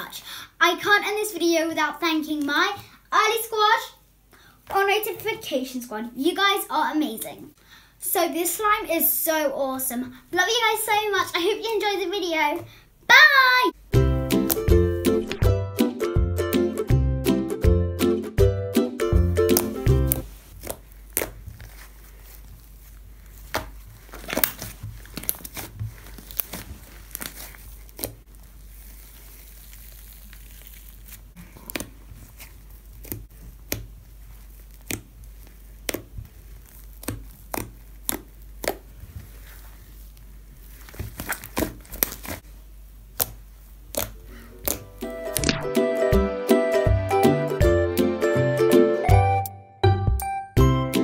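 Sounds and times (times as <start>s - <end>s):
slime pops and clicks: 43.2s - 45.6s.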